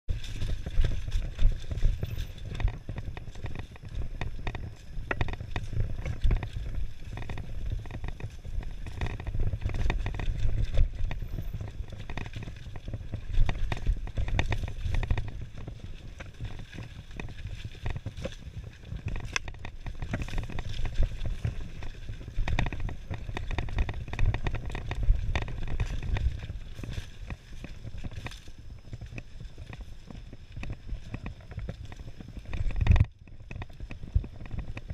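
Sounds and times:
bike knocking and rattling: 0:00.1 - 0:34.9
wind and trail vibration rumble: 0:00.1 - 0:34.9.

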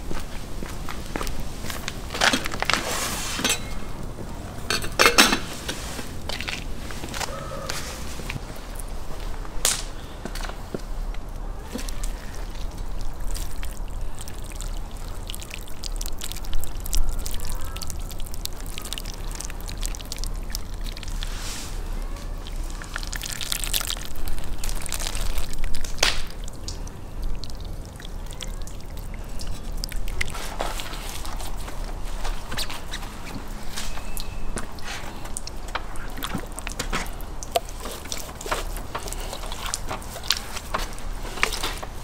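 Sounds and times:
water pouring and splashing on fish: 0:11.6 - 0:42.0.

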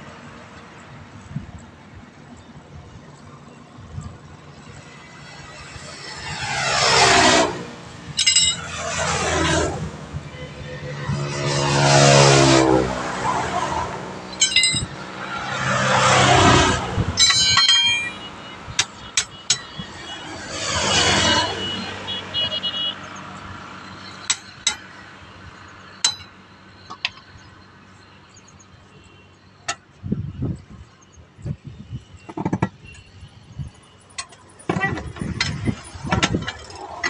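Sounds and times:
vehicles passing: 0:00.0 - 0:37.0
metallic jangle: 0:08.2 - 0:08.7, 0:14.3 - 0:15.0, 0:17.2 - 0:18.3
tyre levers clinking on steel rim: 0:08.2 - 0:08.7, 0:14.3 - 0:15.0, 0:17.2 - 0:19.8, 0:32.2 - 0:37.0.

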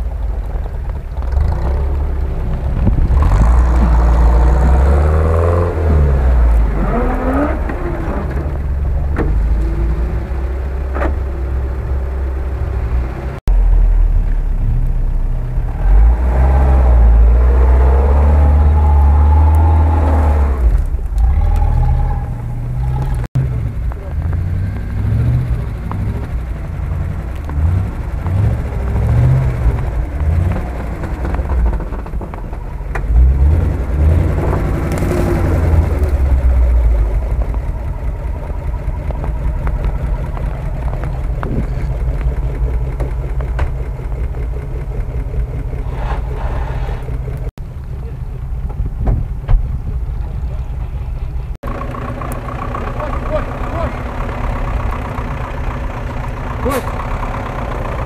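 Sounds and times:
off-road engines revving: 0:00.0 - 0:58.0.

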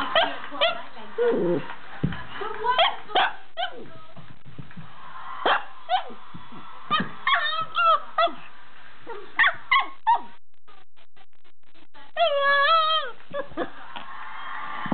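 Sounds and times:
dog barking and yipping: 0:02.8 - 0:03.8, 0:06.9 - 0:08.5, 0:09.1 - 0:10.3
dog howling: 0:06.9 - 0:08.4, 0:12.2 - 0:13.7.

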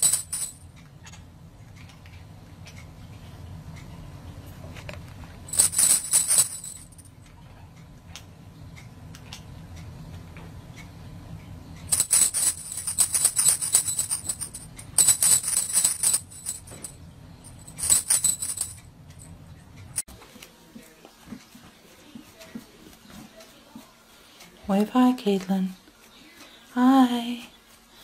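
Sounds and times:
metal jingles shaken: 0:00.0 - 0:00.6, 0:05.5 - 0:07.1, 0:11.9 - 0:19.3.

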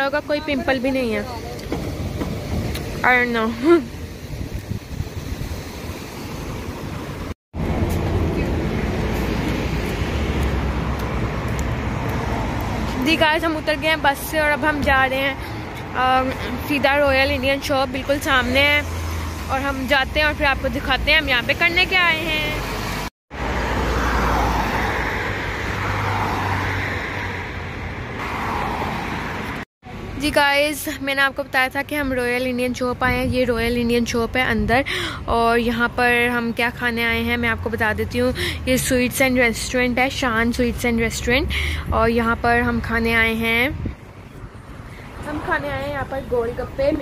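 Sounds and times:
cars passing: 0:00.0 - 0:47.0
moving bus rumble: 0:00.0 - 0:47.0
roadside street noise: 0:00.0 - 0:47.0
wind on microphone: 0:04.2 - 0:05.9, 0:41.8 - 0:45.5.

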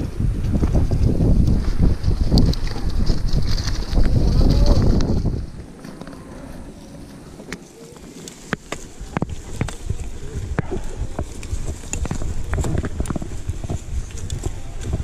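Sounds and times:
bike tyres rumbling on dirt: 0:00.0 - 0:15.0
bike chain clicks and rattles: 0:00.3 - 0:06.0.

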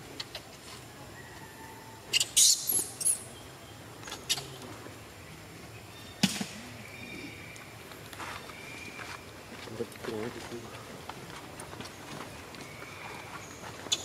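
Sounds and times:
baby monkey squeaking: 0:02.1 - 0:03.2.

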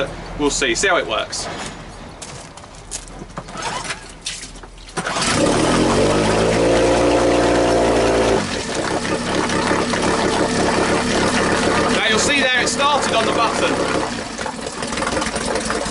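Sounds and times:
outboard motor pull-starting and idling: 0:03.4 - 0:15.9.

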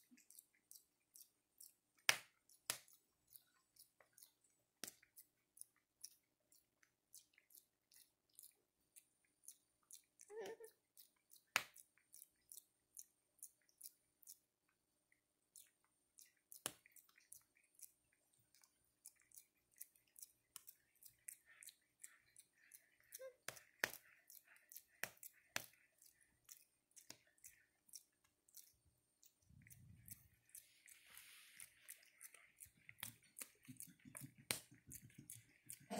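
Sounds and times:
soft clicks and smacks: 0:15.5 - 0:35.9.

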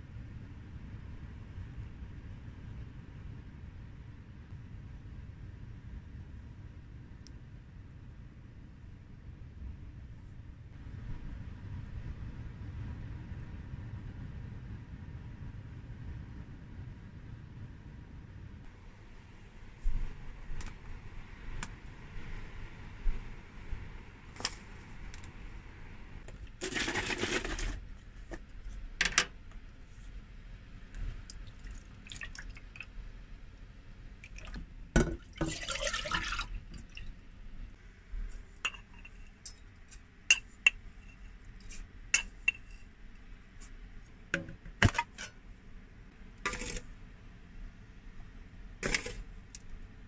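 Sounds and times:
pouring into a pot: 0:26.6 - 0:27.8, 0:31.3 - 0:32.8, 0:35.2 - 0:37.1
spoon clinking against metal: 0:38.7 - 0:39.6, 0:42.2 - 0:42.8.

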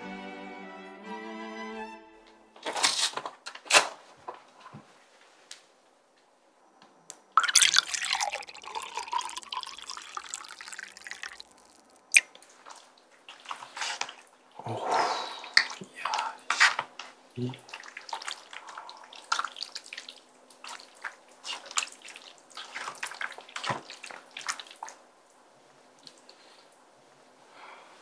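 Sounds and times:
drink pouring into a glass: 0:07.4 - 0:12.3
mouth sound: 0:17.4 - 0:17.7.

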